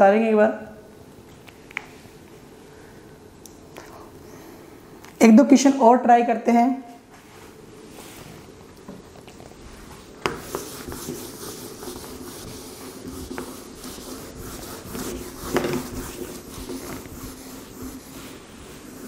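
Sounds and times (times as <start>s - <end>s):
duster scrubbing whiteboard: 9.7s - 19.0s.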